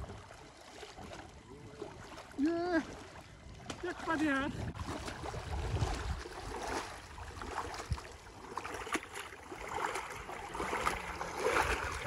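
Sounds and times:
water sloshing around legs: 0:00.0 - 0:12.0
scoop net lifted from water: 0:04.7 - 0:12.0.

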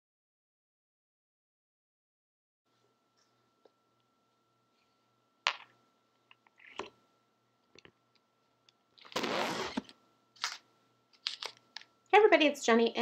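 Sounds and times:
faint steady hum: 0:02.7 - 0:13.0.

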